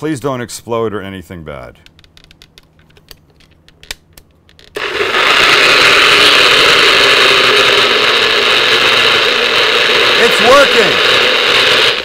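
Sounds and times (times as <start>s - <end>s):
blender motor running: 4.8s - 12.0s.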